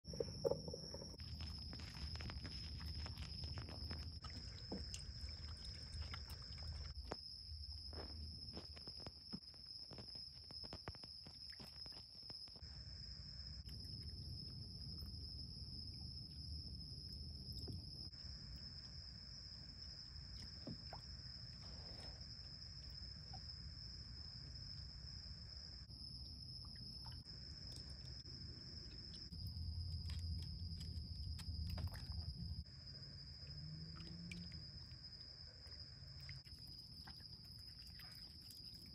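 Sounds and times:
night insects trilling: 0:00.1 - 0:38.9
small water splashes: 0:01.3 - 0:07.1, 0:33.3 - 0:38.9.

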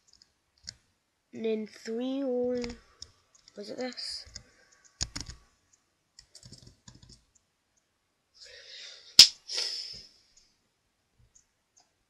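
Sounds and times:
keyboard keys clicking: 0:05.0 - 0:05.4
loud sharp click: 0:09.2 - 0:09.4.

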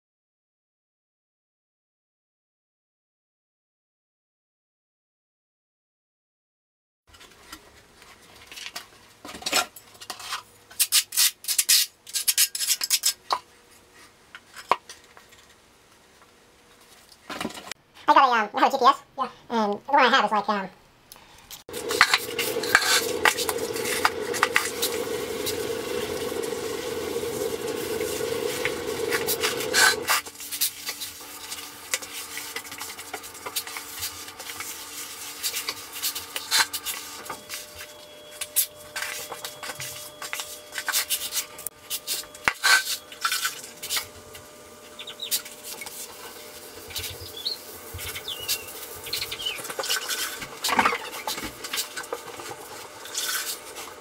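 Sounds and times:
grout float scraping tile: 0:22.0 - 0:24.6, 0:28.0 - 0:37.0.

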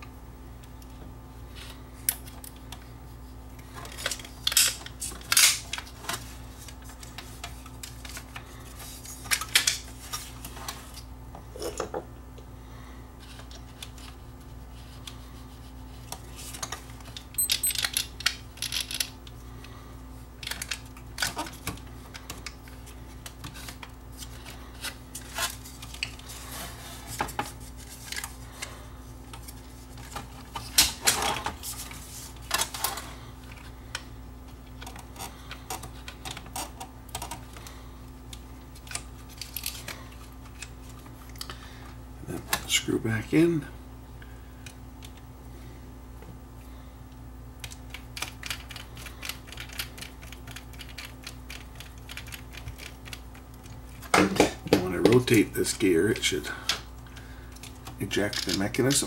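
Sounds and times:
steady low hum: 0:00.0 - 0:59.0
hands handling small plastic parts: 0:56.7 - 0:59.0.

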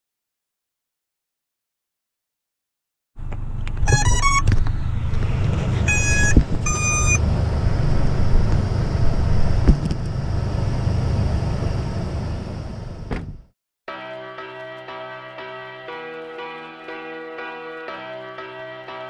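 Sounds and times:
low rumble: 0:03.2 - 0:13.5
electronic power-up beeps: 0:03.9 - 0:04.5, 0:05.7 - 0:07.2.

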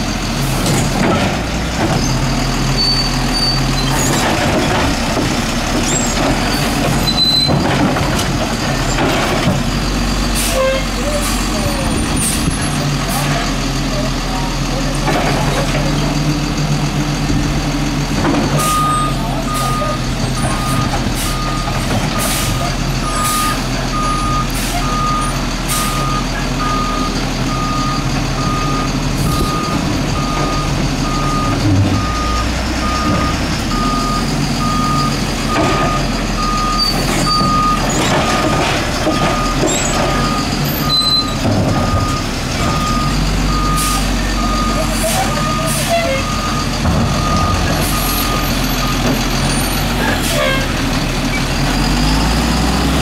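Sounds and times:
truck engine idling: 0:00.0 - 0:53.0
truck reverse alarm beeping: 0:18.6 - 0:50.6.

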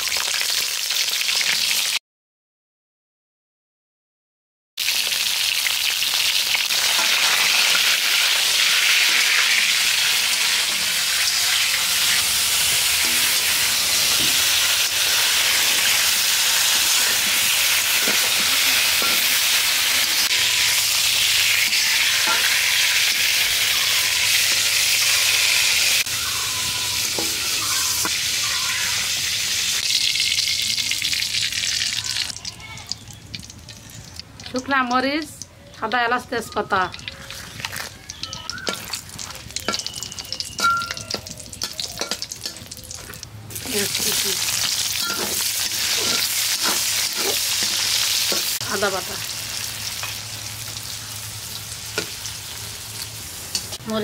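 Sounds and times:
food sizzling in hot oil: 0:00.0 - 0:02.0, 0:04.8 - 0:35.4, 0:36.1 - 0:54.0
utensil stirring and scraping pan: 0:40.6 - 0:48.6.

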